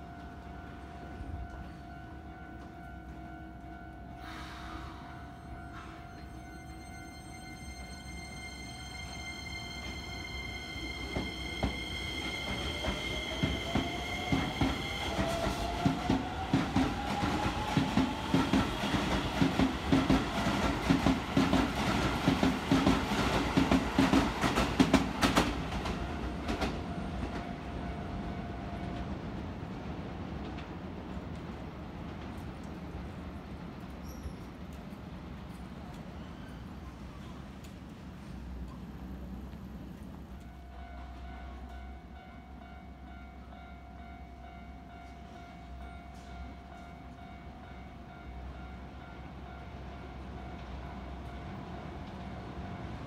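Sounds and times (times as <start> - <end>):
level crossing warning bell: 0.0 - 18.2, 40.3 - 53.0
train wheels clacking over rail joints: 12.4 - 27.4.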